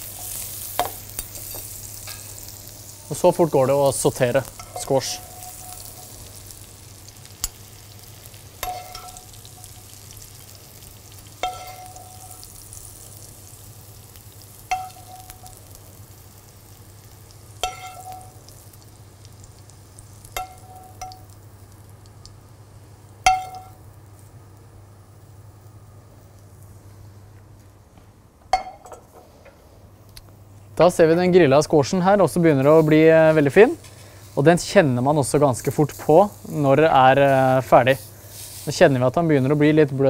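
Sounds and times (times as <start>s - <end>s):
oil sizzling in frying pan: 0.0s - 26.8s, 31.7s - 40.0s
metal utensil clinking on pan: 4.6s - 6.0s, 8.6s - 9.7s, 11.4s - 12.5s, 14.7s - 15.6s, 17.6s - 18.4s, 20.4s - 21.3s, 23.3s - 23.8s, 28.5s - 29.1s.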